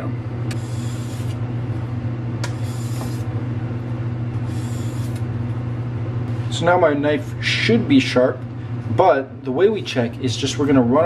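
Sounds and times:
steady low hum: 0:00.0 - 0:11.0
knife scraping on whetstone: 0:00.5 - 0:01.4, 0:02.4 - 0:03.3, 0:04.5 - 0:05.2.

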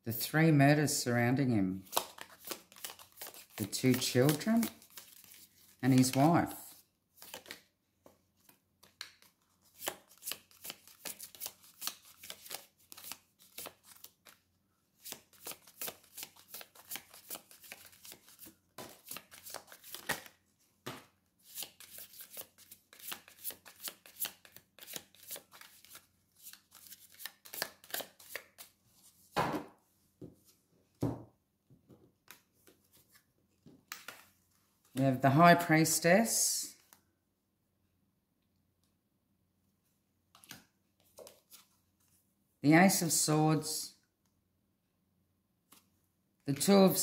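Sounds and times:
cards being shuffled: 0:01.8 - 0:14.4, 0:15.0 - 0:28.8, 0:32.2 - 0:35.0.

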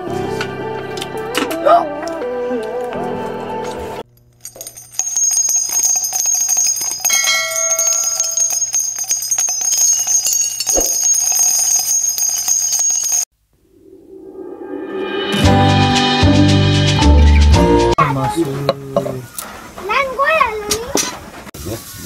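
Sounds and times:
jingling bells and chimes jingle: 0:04.4 - 0:13.3.

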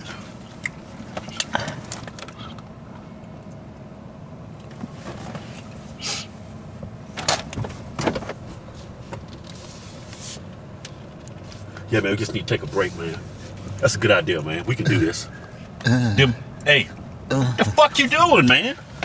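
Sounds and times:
car cabin hum: 0:00.0 - 0:19.0
man breathing out puffs: 0:06.0 - 0:06.4.

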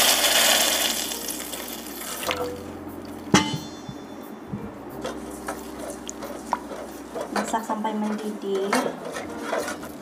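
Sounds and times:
water pouring into a metal pot: 0:00.0 - 0:02.4
ringing clang: 0:03.4 - 0:04.4
wooden spoon stirring and knocking pot: 0:05.0 - 0:10.0.

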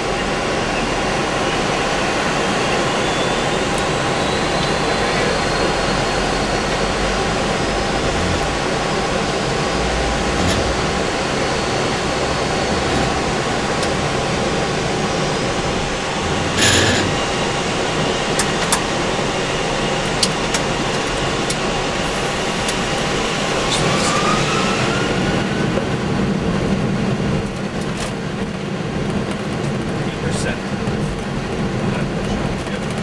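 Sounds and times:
jet engines rumbling: 0:00.0 - 0:33.0
faint rising whine: 0:02.8 - 0:19.8.

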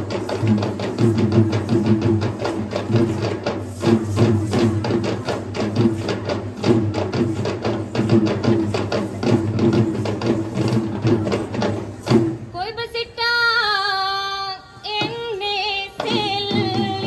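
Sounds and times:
rapid rhythmic drumming: 0:00.0 - 0:12.6, 0:14.9 - 0:17.0.

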